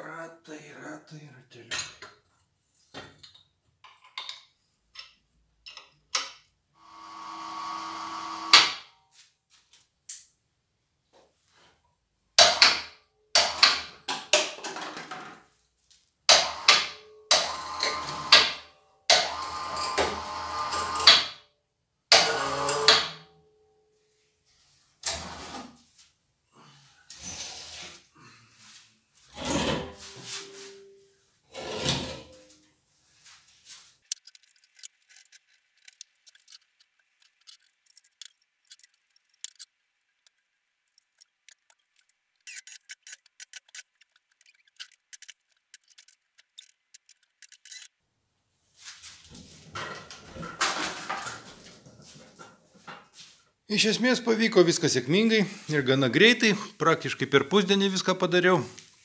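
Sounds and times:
metal scraping: 0:40.3 - 0:47.9.

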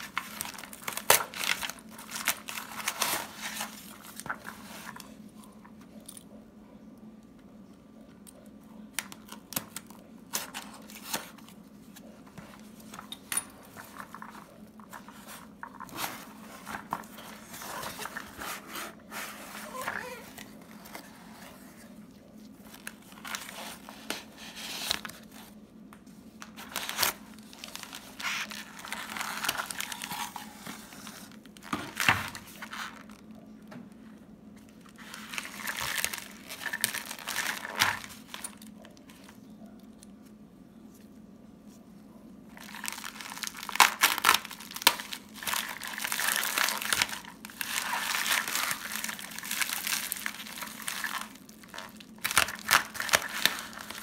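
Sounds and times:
plastic mailer bag rustling: 0:00.0 - 0:05.1, 0:10.4 - 0:25.6, 0:26.4 - 0:33.4, 0:34.7 - 0:39.4, 0:42.5 - 0:54.0
plastic tearing: 0:00.0 - 0:05.1, 0:26.4 - 0:33.4, 0:34.8 - 0:39.3, 0:42.5 - 0:54.0
packing paper crinkling: 0:00.0 - 0:05.5, 0:13.6 - 0:25.6, 0:26.4 - 0:33.5, 0:34.6 - 0:39.5, 0:42.5 - 0:54.0.

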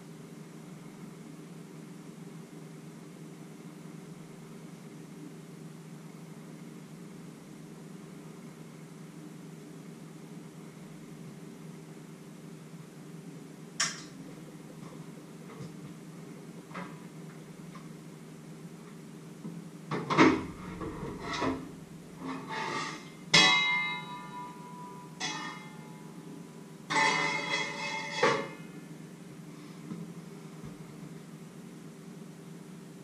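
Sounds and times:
steady low hum: 0:00.0 - 0:33.0
metal pots and lids clanking: 0:20.3 - 0:25.9, 0:26.9 - 0:28.6.

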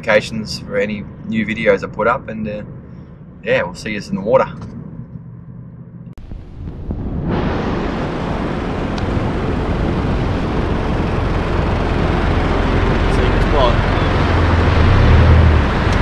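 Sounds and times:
vehicle engine running: 0:04.4 - 0:16.0
wind noise on microphone: 0:06.2 - 0:13.1.

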